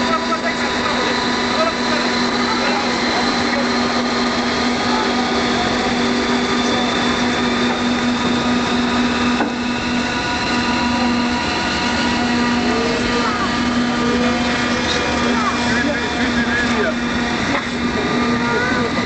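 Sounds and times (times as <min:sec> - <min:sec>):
faint high machinery tone: 0:00.0 - 0:19.0
ship engine drone: 0:00.0 - 0:19.0.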